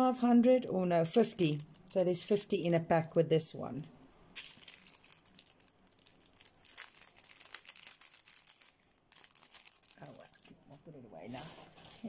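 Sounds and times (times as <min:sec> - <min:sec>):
plastic bag crinkling: 0:01.2 - 0:02.7, 0:04.4 - 0:12.0.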